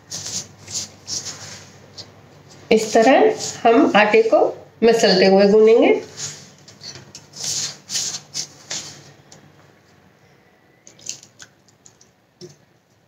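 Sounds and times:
water dribbling: 10.9 - 12.2.

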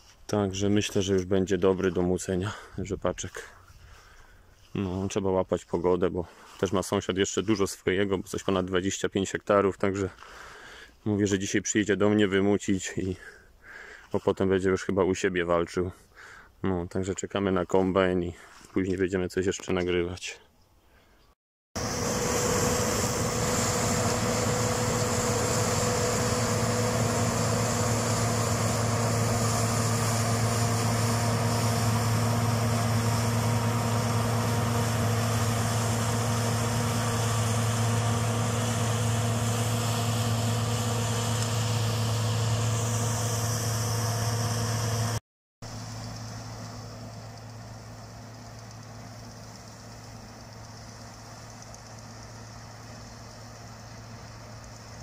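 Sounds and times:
hum of threshing machinery: 0.0 - 5.6, 21.8 - 55.0
combine harvester engine drone: 21.8 - 55.0.

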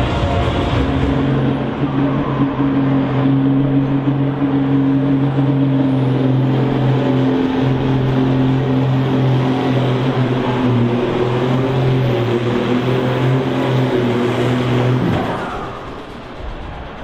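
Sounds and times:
tractor diesel engine at high revs: 0.0 - 16.4.

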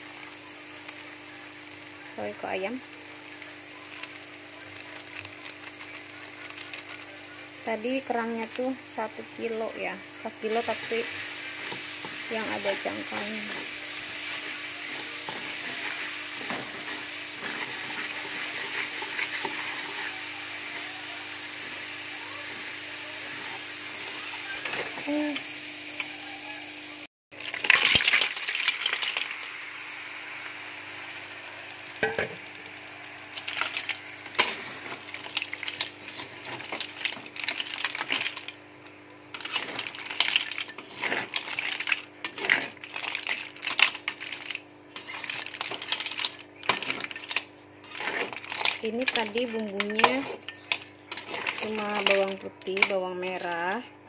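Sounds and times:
mussels sizzling in wok: 0.0 - 53.8
spatula scraping shells on pan: 10.6 - 20.1, 39.3 - 53.0.

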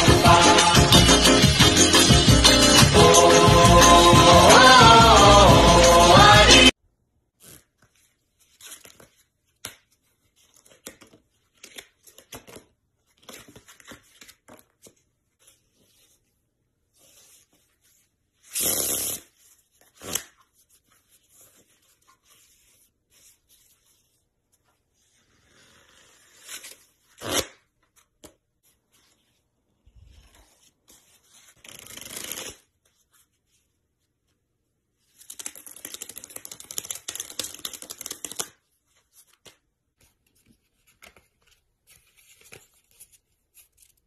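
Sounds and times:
playing cards clicking and rustling: 7.4 - 15.7, 30.2 - 32.7, 35.1 - 44.0
riffle of cards: 18.4 - 20.4, 31.3 - 32.7, 35.2 - 38.6.

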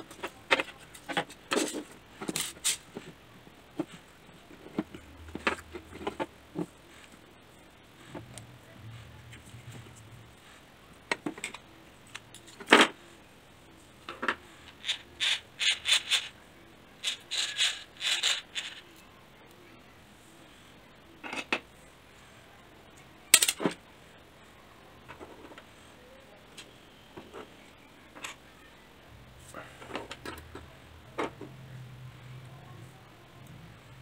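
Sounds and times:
small plastic parts clicking: 23.0 - 23.8.

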